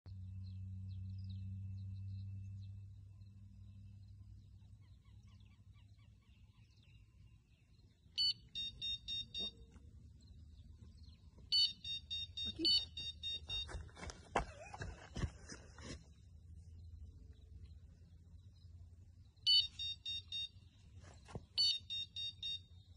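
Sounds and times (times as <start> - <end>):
bite alarm beeping: 8.1 - 9.9, 11.1 - 14.0, 19.4 - 20.8, 21.5 - 22.9.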